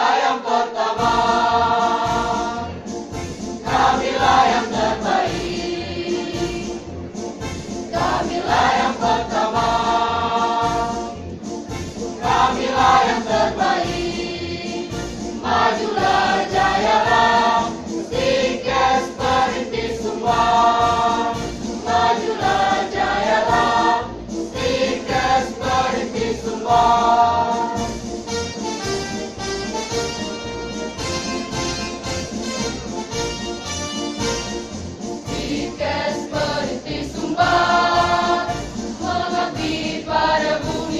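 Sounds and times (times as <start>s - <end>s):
women's choir singing a march: 0.0s - 2.8s, 3.6s - 6.8s, 7.8s - 11.2s, 12.2s - 28.0s, 35.3s - 40.9s.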